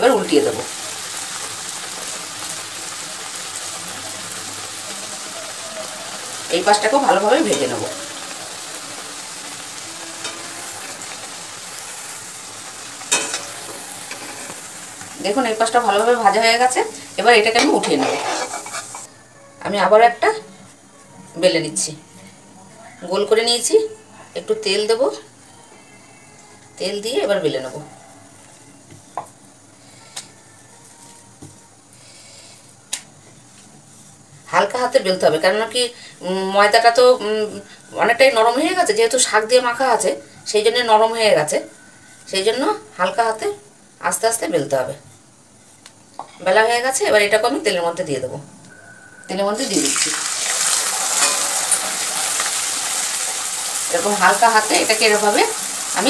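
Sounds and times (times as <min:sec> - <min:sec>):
frying in hot oil: 0:00.0 - 0:19.1, 0:49.2 - 0:56.0
low steady hiss: 0:30.4 - 0:56.0.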